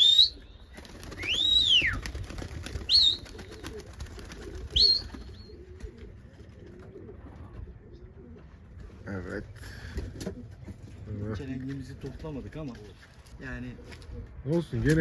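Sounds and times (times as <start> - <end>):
pigeons cooing: 0.0 - 11.0.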